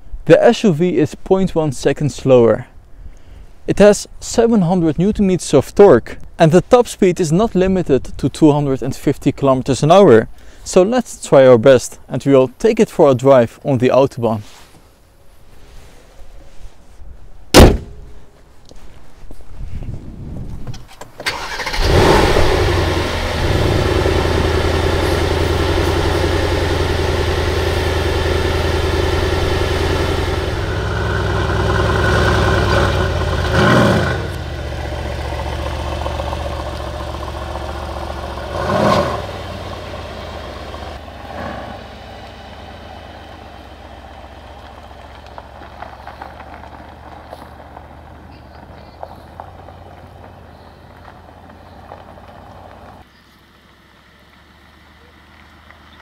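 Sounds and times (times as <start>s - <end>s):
car engine starting and idling: 20.6s - 56.0s
engine throttle blips: 21.2s - 53.0s
car pulling away: 21.2s - 56.0s.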